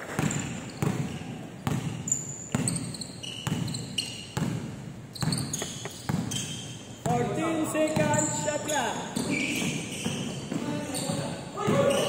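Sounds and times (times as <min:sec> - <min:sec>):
sneakers squeaking on court: 0:00.0 - 0:12.0
basketball bouncing on hardwood: 0:00.2 - 0:08.2.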